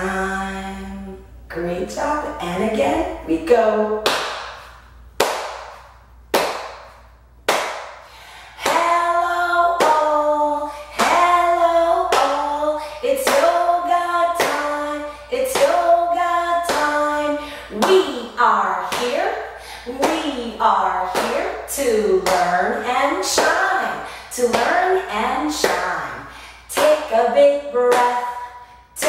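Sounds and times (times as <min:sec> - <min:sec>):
woman singing a chant: 0:00.0 - 0:04.1, 0:08.4 - 0:29.0
woman clapping and patting lap: 0:04.0 - 0:08.0.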